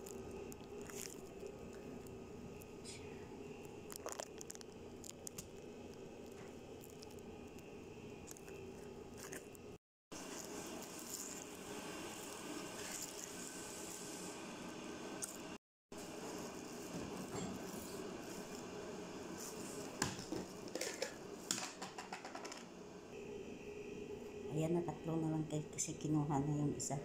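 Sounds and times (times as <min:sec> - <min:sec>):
steady low hum: 0:00.0 - 0:21.5.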